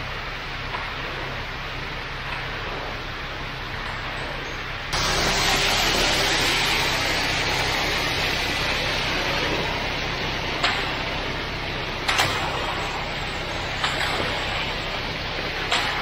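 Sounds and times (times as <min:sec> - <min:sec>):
truck engine rumbling: 0:04.8 - 0:16.0.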